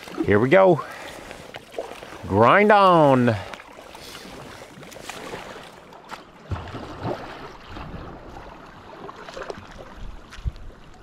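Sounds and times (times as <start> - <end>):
paddle strokes splashing: 0.0 - 11.0
wind rumbling on microphone: 6.8 - 11.0.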